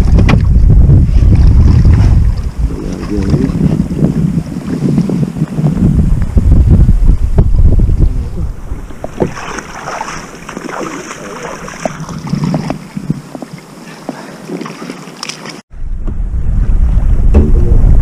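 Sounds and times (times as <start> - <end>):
water splashing against boat: 0.0 - 5.6, 8.5 - 15.6
wind on microphone: 0.0 - 13.7, 15.7 - 18.0.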